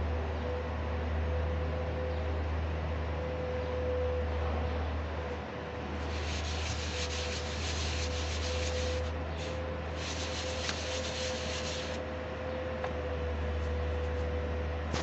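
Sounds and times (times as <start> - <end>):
metal scraping on abrasive sheet: 6.0 - 12.0.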